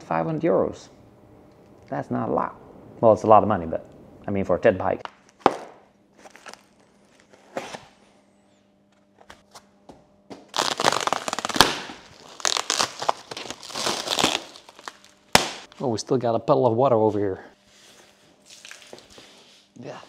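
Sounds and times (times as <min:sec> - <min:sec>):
packing material crinkling: 0:06.2 - 0:07.8, 0:10.5 - 0:15.8.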